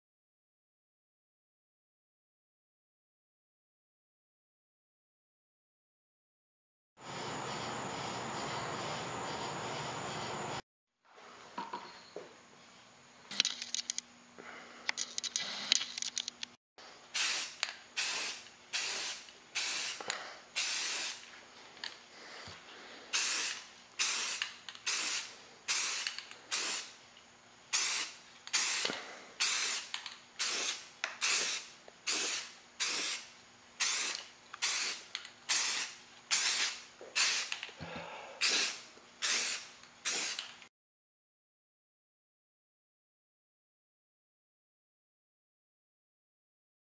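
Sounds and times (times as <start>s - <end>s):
airbrush spraying hiss bursts: 17.1s - 21.3s, 23.0s - 27.0s, 27.7s - 37.6s, 38.4s - 40.6s.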